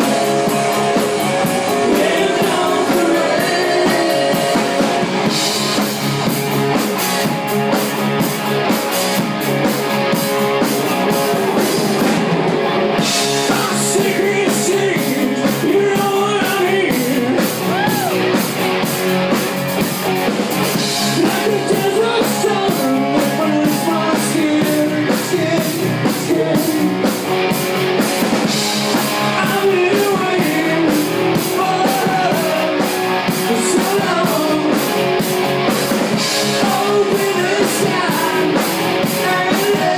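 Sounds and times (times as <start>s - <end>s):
bass guitar: 0.0s - 39.9s
drum kit beat: 0.0s - 39.9s
electric guitars: 0.0s - 39.9s.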